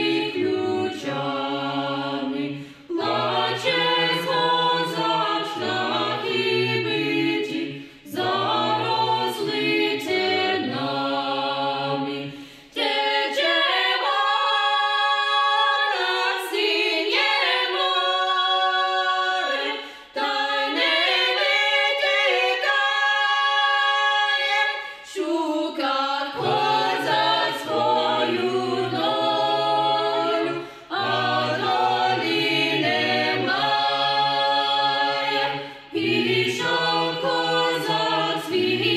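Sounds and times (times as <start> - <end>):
choir singing a cappella: 0.0 - 38.9
singers breathing: 2.5 - 2.9, 7.7 - 8.1, 12.3 - 12.8, 19.7 - 20.2, 30.5 - 30.9, 35.6 - 36.0.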